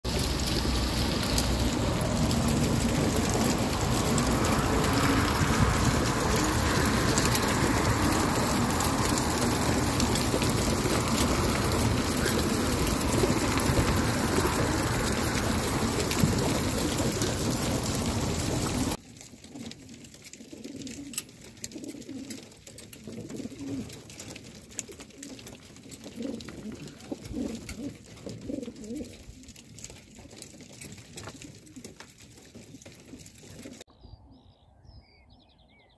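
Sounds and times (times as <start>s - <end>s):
loud steady rushing noise: 0.1s - 19.0s
pigeons cooing: 0.2s - 19.0s, 20.4s - 29.5s.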